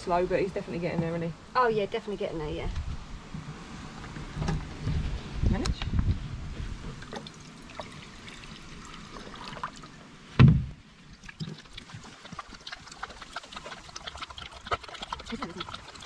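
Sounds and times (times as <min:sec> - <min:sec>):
dog lapping water: 0:07.0 - 0:09.9, 0:11.1 - 0:16.0
water running into bowl: 0:07.0 - 0:10.0, 0:11.2 - 0:16.0
thump: 0:10.4 - 0:10.8.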